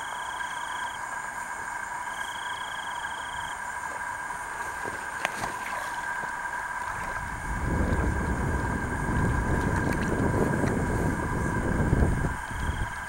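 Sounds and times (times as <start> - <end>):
night insects chorus: 0.0 - 13.0
low rumbling on microphone: 6.8 - 13.0.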